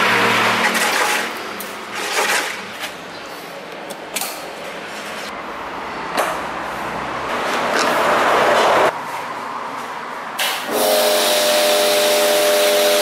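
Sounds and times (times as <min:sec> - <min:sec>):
busy road traffic: 0:02.6 - 0:10.8.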